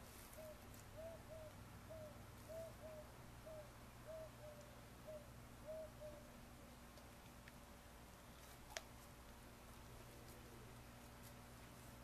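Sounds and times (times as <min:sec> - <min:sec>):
bird cooing: 0:00.3 - 0:06.3.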